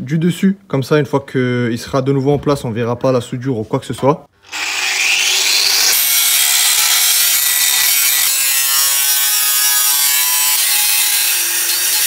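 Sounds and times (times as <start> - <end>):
angle grinder cutting metal: 4.4 - 12.0.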